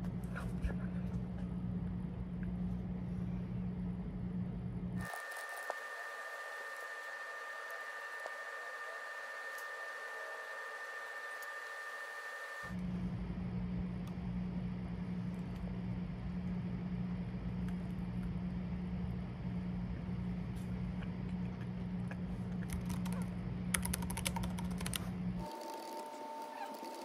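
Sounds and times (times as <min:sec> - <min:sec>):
steady low hum: 0:00.0 - 0:27.0
typing on laptop keyboard: 0:22.6 - 0:27.0.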